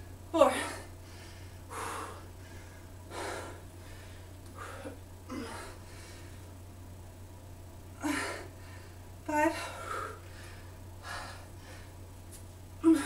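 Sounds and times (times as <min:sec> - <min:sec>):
woman breathing hard: 0:00.5 - 0:06.6, 0:08.0 - 0:12.0.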